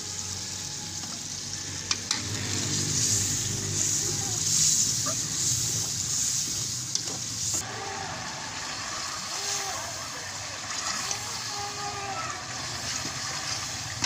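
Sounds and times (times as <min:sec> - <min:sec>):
chicken sizzling in a pot: 0:00.0 - 0:14.0
bubbling: 0:07.6 - 0:14.0.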